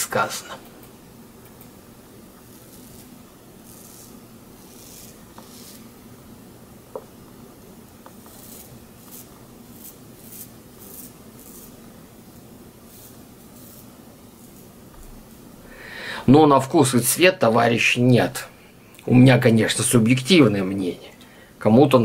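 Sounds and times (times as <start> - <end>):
razor scraping stubble: 2.4 - 6.0, 8.0 - 15.1.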